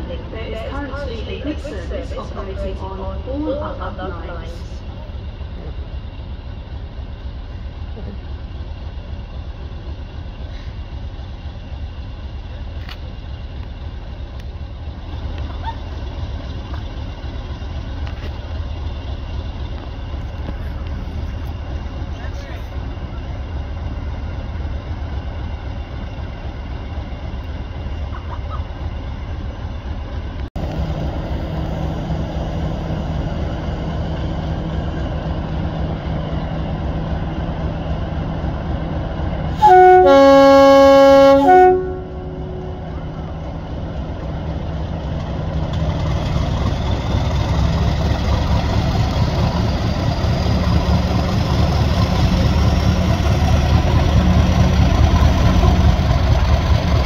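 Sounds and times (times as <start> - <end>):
diesel locomotive engine: 0.0 - 57.0
two-tone train horn: 39.5 - 43.1.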